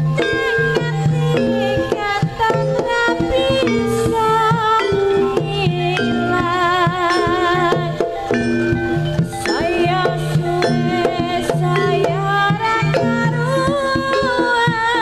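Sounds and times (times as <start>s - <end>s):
steady drumming: 0.0s - 15.0s
wavering melody line: 0.0s - 15.0s
sharp struck accents: 2.6s - 13.6s.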